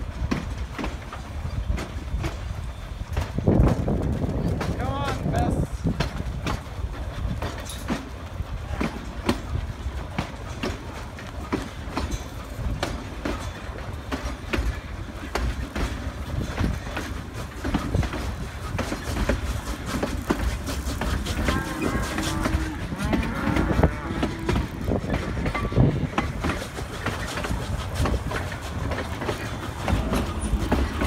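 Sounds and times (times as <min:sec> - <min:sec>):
train wheels clickety-clack: 0:00.0 - 0:31.0
cattle mooing: 0:21.4 - 0:24.8.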